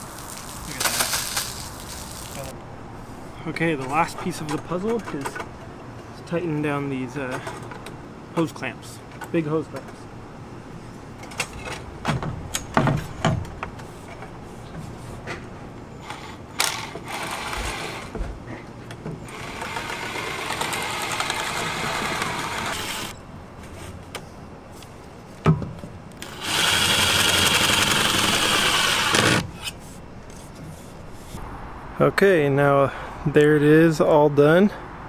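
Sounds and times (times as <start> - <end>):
impact driver running: 19.3 - 23.1, 26.2 - 29.4.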